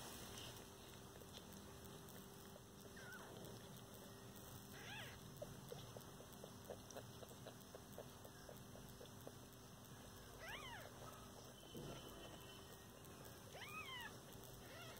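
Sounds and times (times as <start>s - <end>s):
kitten mewing: 2.8s - 3.5s, 4.7s - 6.0s, 10.4s - 11.1s.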